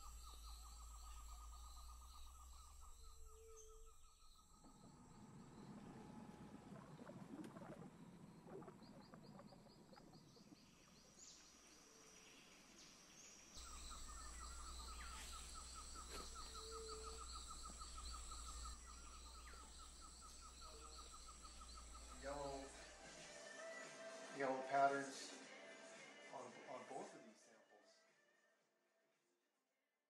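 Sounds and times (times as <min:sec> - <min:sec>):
birds calling: 0:00.0 - 0:11.4, 0:13.6 - 0:23.0.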